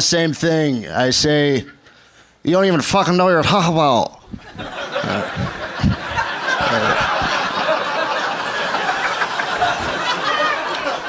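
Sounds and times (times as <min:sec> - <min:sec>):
audience laughing: 0:04.4 - 0:11.0.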